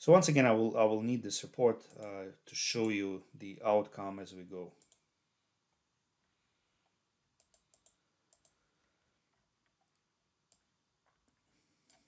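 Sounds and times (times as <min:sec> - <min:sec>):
computer mouse clicks: 0:04.8 - 0:05.0, 0:07.4 - 0:08.6.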